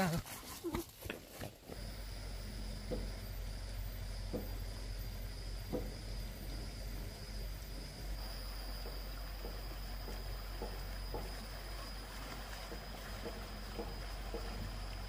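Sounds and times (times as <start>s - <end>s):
steady low hum: 0.0s - 15.0s
thin high whine: 1.7s - 15.0s
slow soft footsteps: 8.2s - 15.0s.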